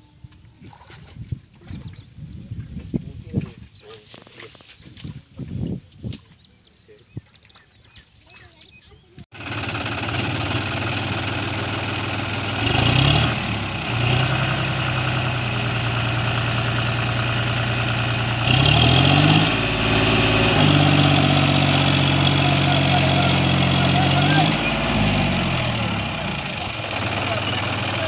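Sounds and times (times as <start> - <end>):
tractor diesel engine revving: 9.4 - 28.0.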